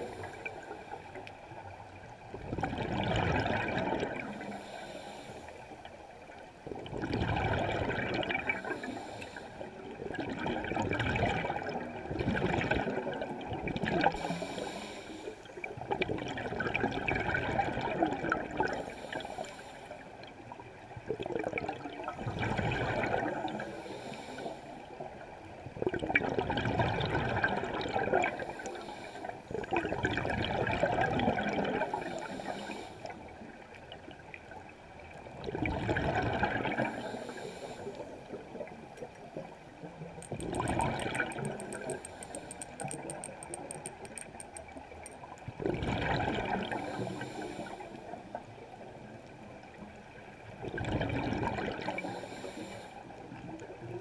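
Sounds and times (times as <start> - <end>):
gurgling exhaled bubbles: 2.3 - 4.6, 6.6 - 9.0, 9.8 - 14.4, 15.7 - 18.8, 21.0 - 23.8, 25.7 - 28.6, 29.5 - 32.3, 35.2 - 37.4, 38.0 - 49.1, 50.4 - 52.2
regulator inhalation hiss: 14.2 - 15.4, 41.6 - 44.1.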